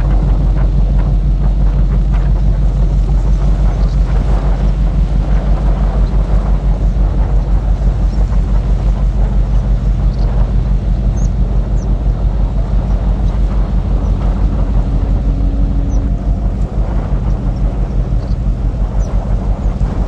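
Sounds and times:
faint steady hum: 0:00.0 - 0:20.0
wind buffeting microphone: 0:00.0 - 0:20.0.

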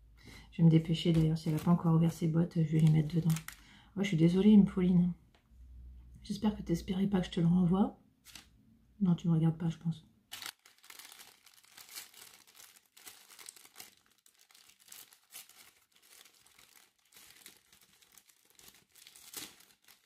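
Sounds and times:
kraft paper crinkling: 0:00.8 - 0:03.6, 0:08.2 - 0:08.5, 0:10.3 - 0:20.0.

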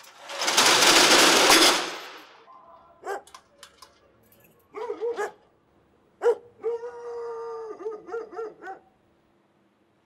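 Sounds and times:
dog barking: 0:03.0 - 0:03.4, 0:04.7 - 0:05.5, 0:06.2 - 0:07.1, 0:07.7 - 0:09.0.

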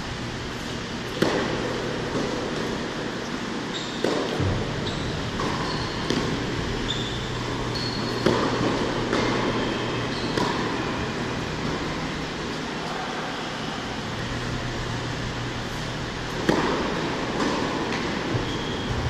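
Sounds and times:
steady low hum: 0:00.0 - 0:19.0
racket striking tennis ball: 0:01.1 - 0:03.0, 0:03.8 - 0:04.7, 0:05.3 - 0:09.7, 0:10.3 - 0:12.0, 0:16.2 - 0:18.6
tennis shoes squeaking on court: 0:02.1 - 0:10.9, 0:15.7 - 0:19.0.

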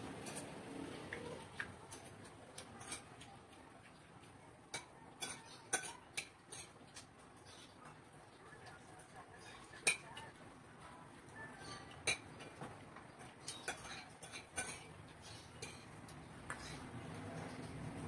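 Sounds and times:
spoon clicking against bowls: 0:04.7 - 0:07.1, 0:11.9 - 0:12.6, 0:13.2 - 0:16.8.

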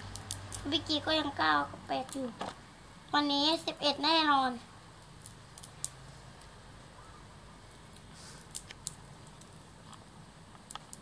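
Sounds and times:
bean pods cracking open: 0:00.0 - 0:00.7, 0:01.8 - 0:02.6, 0:04.9 - 0:06.6, 0:07.7 - 0:11.0.

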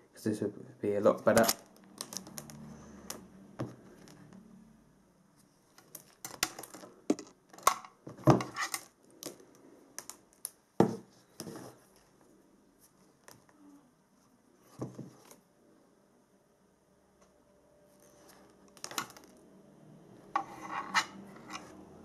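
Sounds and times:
wires rustling: 0:01.1 - 0:04.5, 0:05.4 - 0:15.4
wire strippers clicking and snipping: 0:01.3 - 0:03.3, 0:05.8 - 0:08.0.

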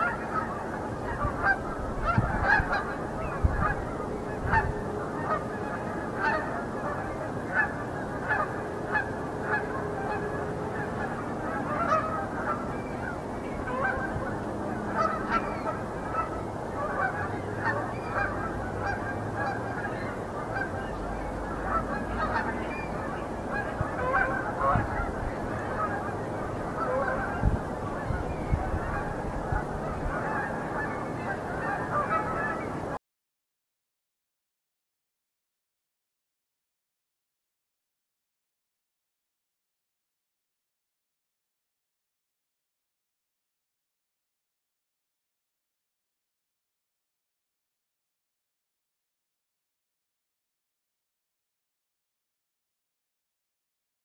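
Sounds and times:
geese honking: 0:00.0 - 0:33.0.

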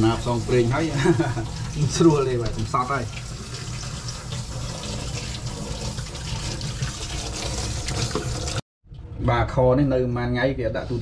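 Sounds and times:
tap water running into sink: 0:00.0 - 0:08.6.

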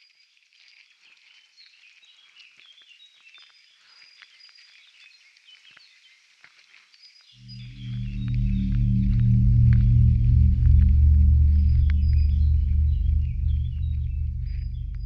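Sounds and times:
small birds chirping: 0:00.0 - 0:15.0
loud deep drone: 0:07.4 - 0:15.0.

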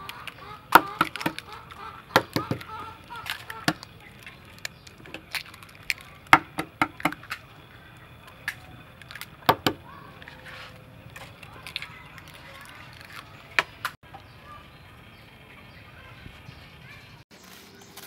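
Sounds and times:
eggshells cracking: 0:00.0 - 0:14.0.

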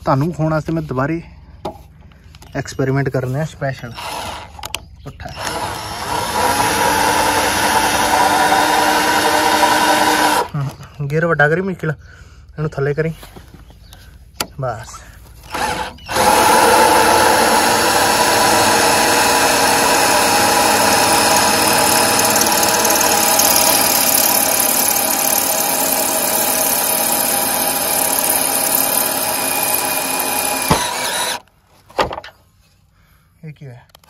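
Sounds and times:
cordless drill driving screw: 0:03.9 - 0:10.5, 0:15.4 - 0:31.5.

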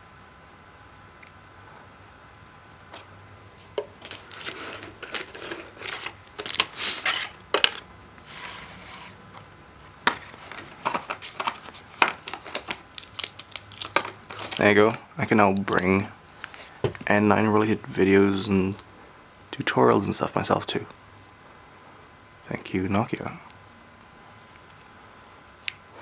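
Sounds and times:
plastic and cardboard rustling: 0:02.9 - 0:17.1.

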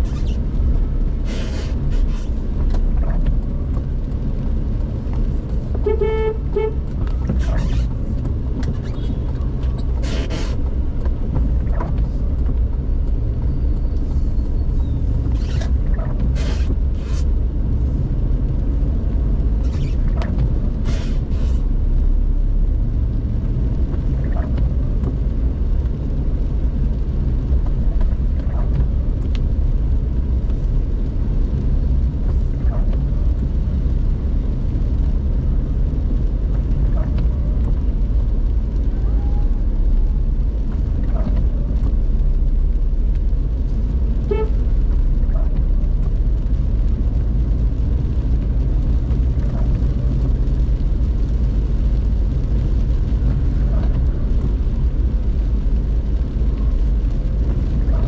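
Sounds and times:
car engine rumble: 0:00.0 - 0:58.0
tyres on wet road: 0:00.0 - 0:58.0.

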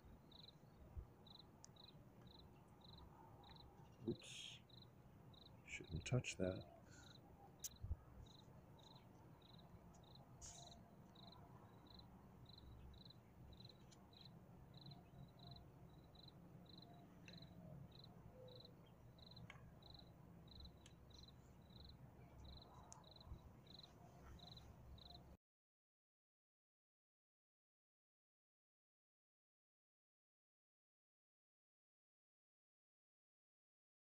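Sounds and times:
outdoor background noise: 0:00.0 - 0:25.4
cricket chirping: 0:00.3 - 0:25.3.

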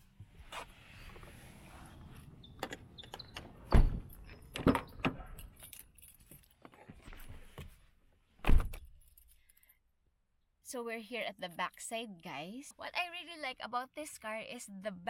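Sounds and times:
keys jingling: 0:04.1 - 0:06.7, 0:08.8 - 0:09.7.

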